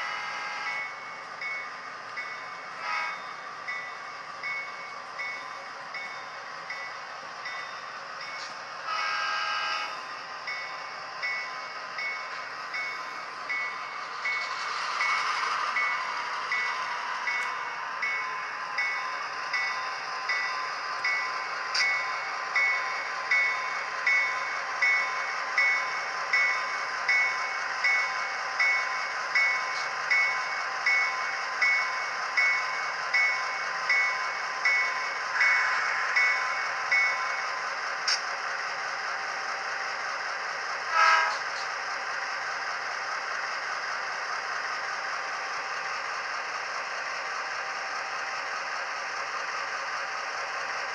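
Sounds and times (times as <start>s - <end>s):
locomotive bell ringing: 0.0s - 37.6s
model locomotive engine sound: 0.0s - 50.9s.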